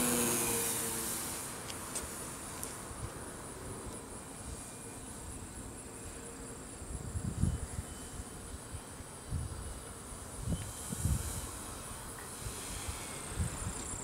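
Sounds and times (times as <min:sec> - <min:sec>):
wind rumble on microphone: 0:06.8 - 0:14.0.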